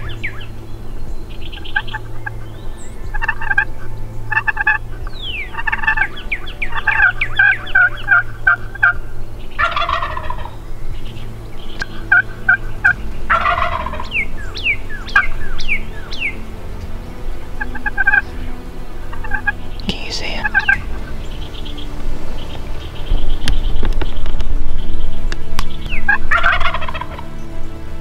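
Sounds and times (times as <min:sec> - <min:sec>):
turkey gobbling: 0:01.5 - 0:16.9, 0:17.5 - 0:19.7, 0:20.4 - 0:27.2
hen turkey yelps: 0:03.1 - 0:03.7, 0:04.3 - 0:09.0, 0:09.6 - 0:10.6, 0:11.8 - 0:16.4, 0:17.6 - 0:18.2, 0:19.2 - 0:19.5, 0:26.1 - 0:27.2.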